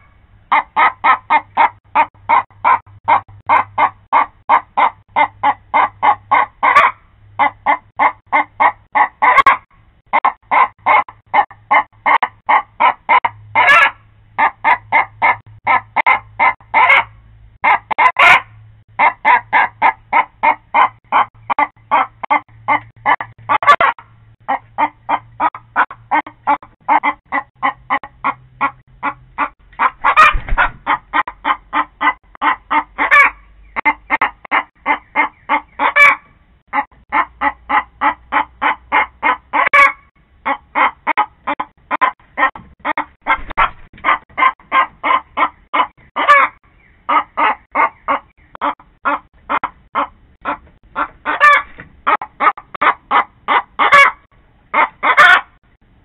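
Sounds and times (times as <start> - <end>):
hen clucking and squawking: 0.0 - 55.7.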